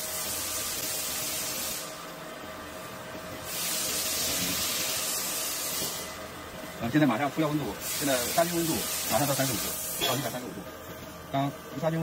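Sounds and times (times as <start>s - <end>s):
steam hissing: 0.0s - 2.2s, 3.4s - 10.5s.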